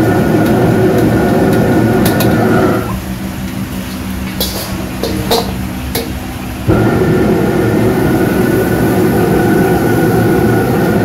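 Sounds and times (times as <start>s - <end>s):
gas wok burner roaring: 0.0s - 11.0s
steady low hum: 0.0s - 11.0s
ladle clinking against wok: 3.8s - 6.2s.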